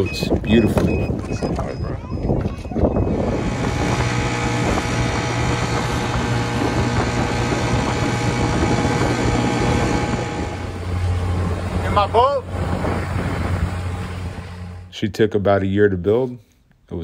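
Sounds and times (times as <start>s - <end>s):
water noise: 0.0s - 14.9s
wind: 0.0s - 17.0s
outboard motor hum: 2.5s - 14.9s.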